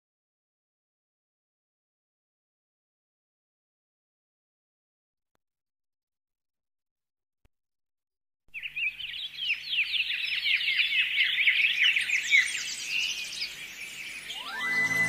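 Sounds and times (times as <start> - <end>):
flock of birds chirping: 8.6 - 15.0
rising tone: 14.2 - 15.0.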